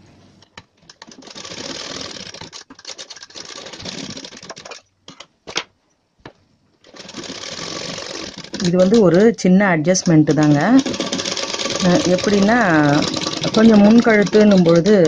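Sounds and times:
sewing machine stitching: 0.6s - 5.3s, 6.8s - 15.0s.

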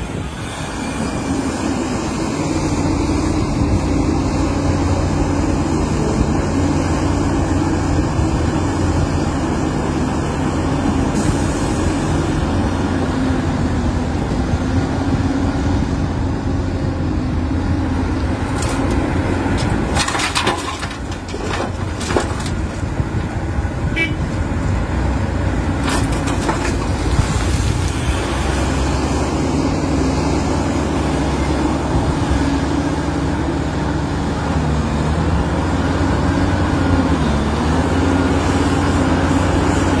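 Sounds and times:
excavator diesel engine droning: 0.0s - 40.0s
rocks dropping into steel truck: 18.4s - 23.4s, 25.7s - 27.9s.

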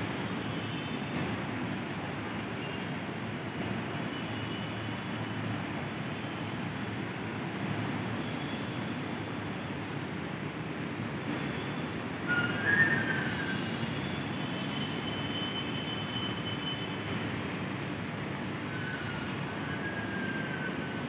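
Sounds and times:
distant city traffic rumble: 0.0s - 21.0s
trains: 0.0s - 21.0s
high whistle-like tone: 12.3s - 13.7s
faint high whistle tone: 12.3s - 13.8s.

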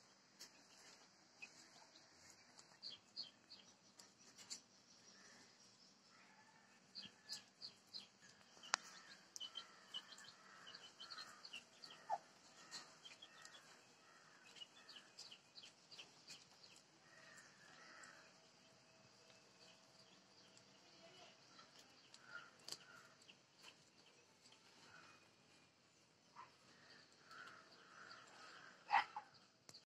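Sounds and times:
small birds chirping: 0.0s - 29.9s.

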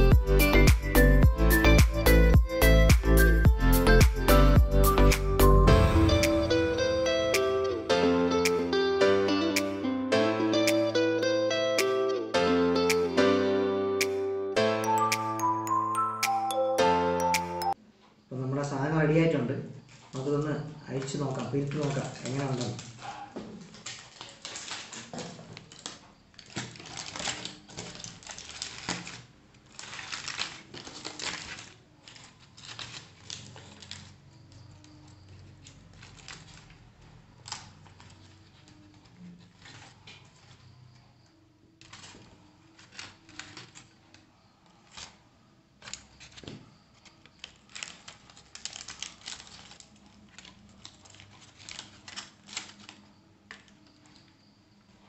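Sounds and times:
banana leaves rustling: 19.8s - 40.7s, 41.8s - 44.2s, 45.8s - 53.1s
aluminium foil crinkling: 19.8s - 55.0s.

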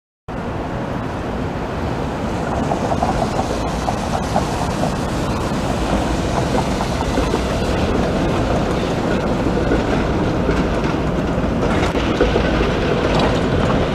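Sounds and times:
streetcar rumble and hiss: 0.3s - 13.9s
wheels squeaking on curve: 2.4s - 10.7s.

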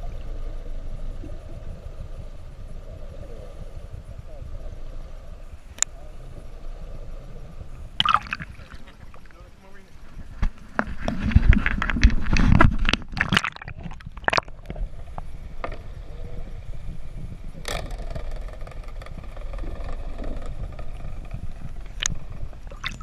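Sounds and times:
underwater rush of water: 7.8s - 15.6s, 19.6s - 23.0s
knocks and splashing: 8.0s - 9.4s, 10.7s - 14.8s, 21.9s - 23.0s.

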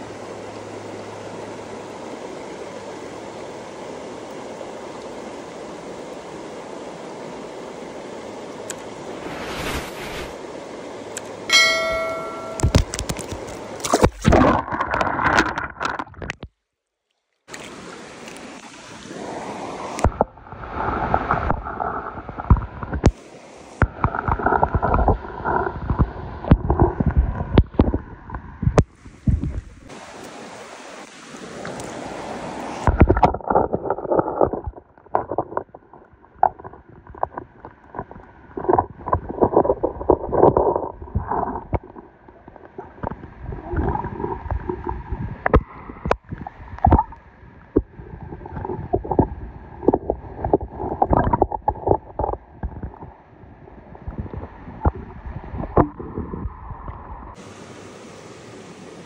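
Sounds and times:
stream water rushing: 0.0s - 16.0s, 17.5s - 27.9s, 28.8s - 56.0s, 57.3s - 59.0s
brief ringing tone: 11.5s - 12.8s
handling noise knocks: 11.5s - 13.3s
wind on microphone: 23.8s - 29.9s, 42.9s - 57.4s.

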